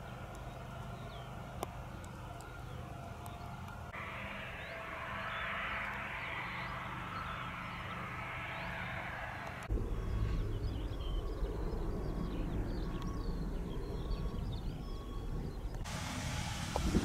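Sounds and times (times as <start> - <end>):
birds chirping: 0.0 - 16.2
vehicle engine running: 0.0 - 17.0
low rumble: 3.6 - 17.0
rushing hiss: 4.0 - 9.7, 15.9 - 17.0.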